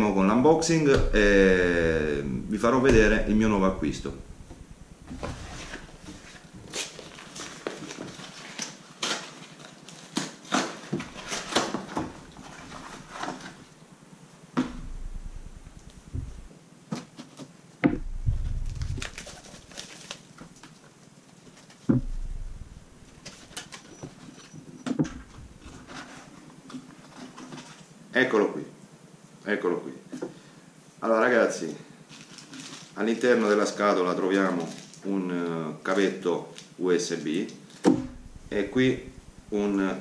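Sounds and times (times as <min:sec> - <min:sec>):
cardboard tearing and rustling: 0:03.9 - 0:13.7, 0:18.3 - 0:21.9, 0:32.1 - 0:33.4, 0:34.4 - 0:35.0.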